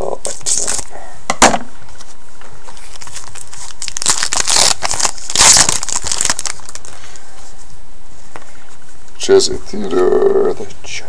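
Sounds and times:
foil wrapper crinkling: 0.2 - 0.9, 2.6 - 7.2.

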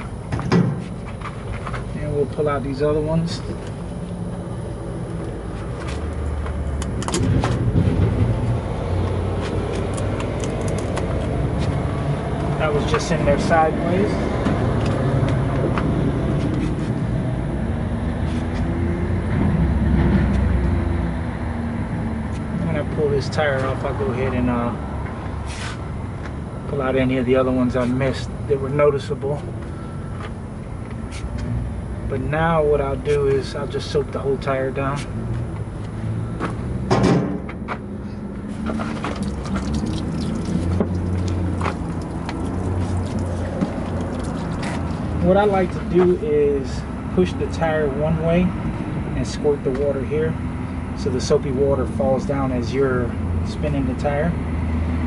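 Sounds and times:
low mechanical hum: 0.0 - 54.6
low engine drone: 0.0 - 55.0
water squirting onto tire: 38.8 - 45.1.

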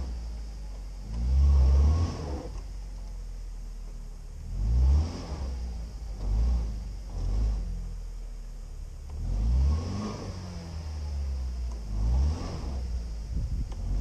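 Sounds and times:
engine revving: 1.0 - 2.7, 4.4 - 8.2, 8.9 - 14.0.

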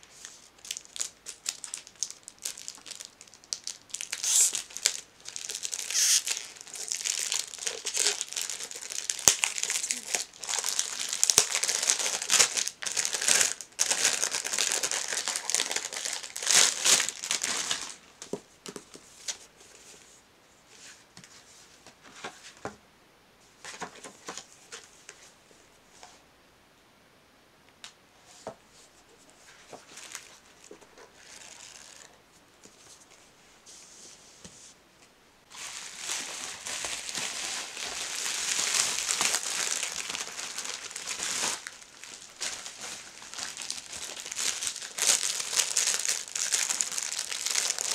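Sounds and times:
bubble wrap crinkling: 0.0 - 18.3, 29.4 - 32.2, 35.5 - 47.9
plastic packaging crinkling: 0.0 - 18.3, 29.6 - 32.2, 35.5 - 47.9.

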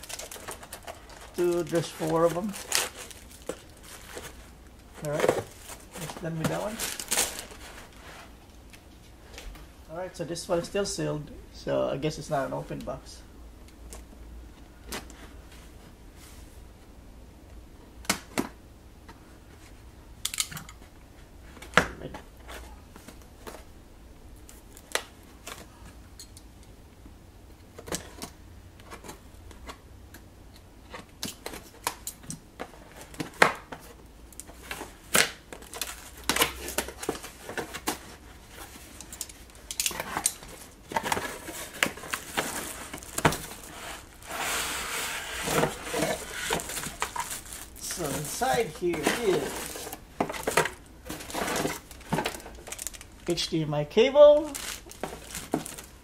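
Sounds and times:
plastic wrap crinkling: 0.0 - 8.3, 34.4 - 53.5, 54.4 - 56.0.

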